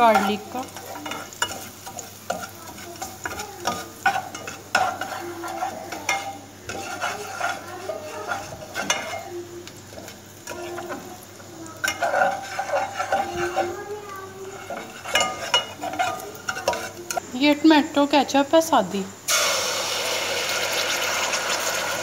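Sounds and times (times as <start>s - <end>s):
spatula scraping a pan: 0.0s - 17.3s
garlic sizzling in oil: 0.0s - 22.0s.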